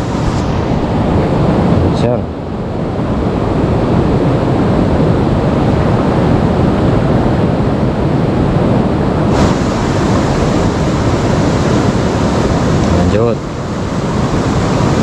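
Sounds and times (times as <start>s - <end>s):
wind rumble on microphone: 0.0s - 15.0s
river water rushing: 9.2s - 15.0s.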